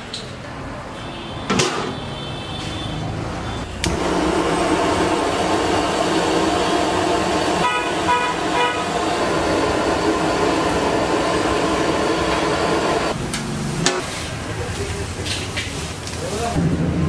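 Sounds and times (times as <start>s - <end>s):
gas burner rushing: 3.7s - 15.7s
horn toots: 7.4s - 10.0s.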